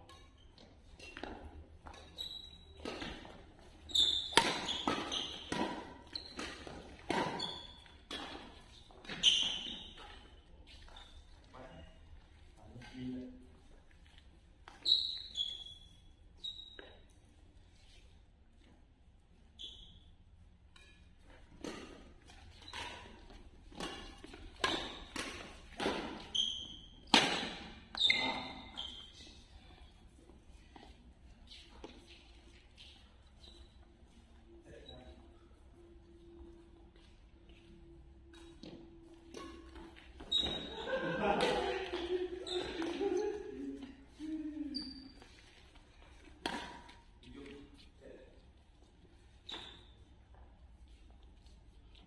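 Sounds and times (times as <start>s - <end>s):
shoes squeaking on court floor: 0.0s - 52.0s
rackets hitting shuttlecock: 2.8s - 10.2s, 20.7s - 29.1s, 38.3s - 43.3s, 46.2s - 47.0s.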